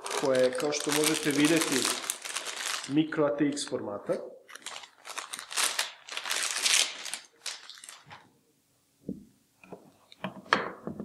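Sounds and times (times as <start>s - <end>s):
plastic bag crinkling: 0.0s - 3.7s, 4.4s - 8.3s.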